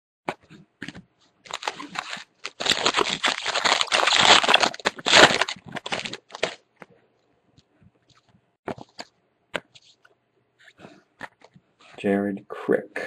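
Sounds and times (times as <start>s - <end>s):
plastic crinkling: 0.8s - 6.8s, 8.1s - 9.1s.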